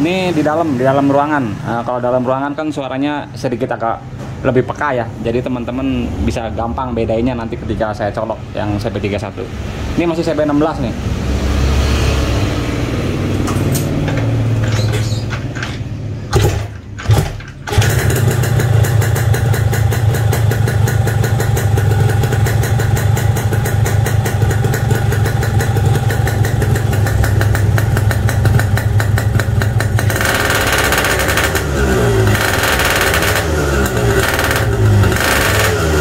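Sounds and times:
two-stroke motorcycle engine idling: 16.4 - 36.0.

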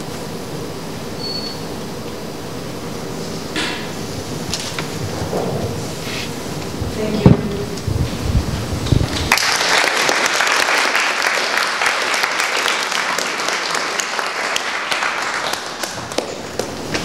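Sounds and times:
audience applauding: 9.0 - 17.0.

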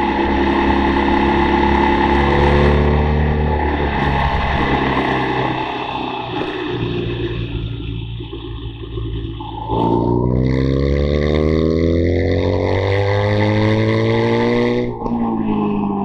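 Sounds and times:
wind rush: 0.0 - 8.4
motorcycle engine accelerating: 0.0 - 16.0.

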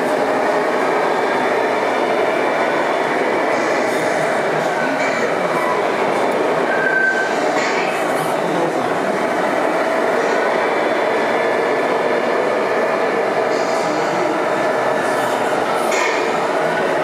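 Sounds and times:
high squeak: 6.7 - 7.3.

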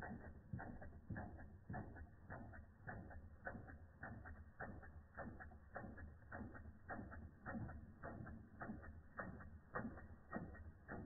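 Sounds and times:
model steam engine ticking: 0.0 - 11.0.

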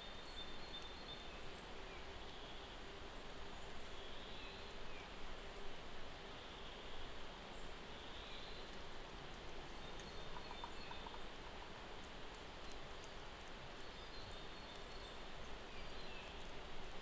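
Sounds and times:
faint ticks: 0.3 - 4.0, 8.6 - 17.0.

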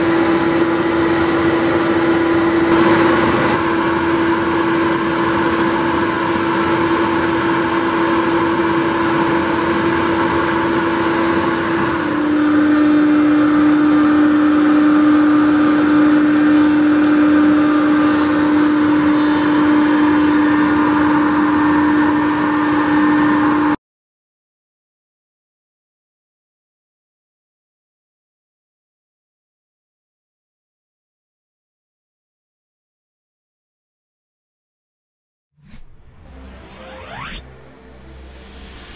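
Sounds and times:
router spindle carving foam: 0.2 - 23.7.

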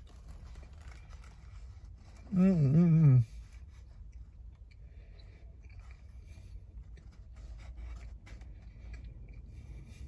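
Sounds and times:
wrap rustling: 0.0 - 4.6
low rumble in car cabin: 0.0 - 10.0
man chewing: 3.2 - 10.0.

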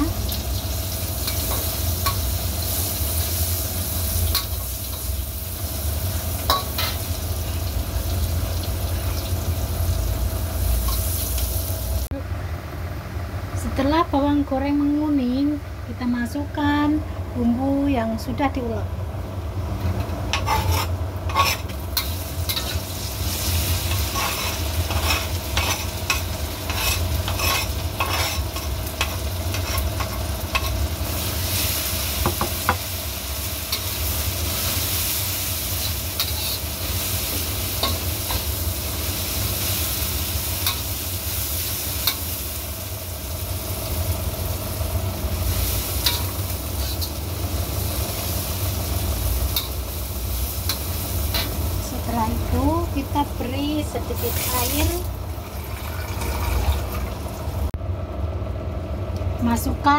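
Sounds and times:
paste sizzling in hot oil: 0.0 - 12.1, 20.4 - 57.6
metal spatula scraping wok: 20.3 - 31.9, 33.7 - 42.4, 45.5 - 47.3, 47.9 - 55.0.

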